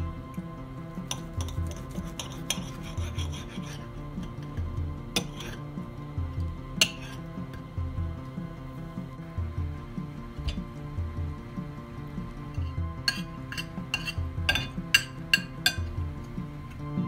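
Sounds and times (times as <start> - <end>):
background music with bass line: 0.0 - 17.0
fork scraping ceramic plate: 1.1 - 5.7, 6.8 - 7.3, 12.5 - 16.0.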